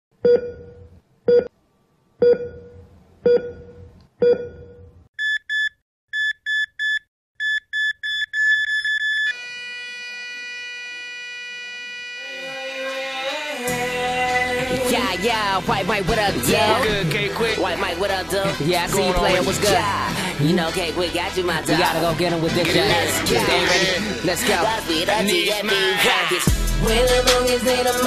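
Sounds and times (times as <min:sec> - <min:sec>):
heart monitor beeps: 0:00.2 - 0:01.5, 0:02.2 - 0:09.4
heart monitor steady tone: 0:00.2 - 0:01.5, 0:02.2 - 0:09.4
music: 0:12.3 - 0:28.0.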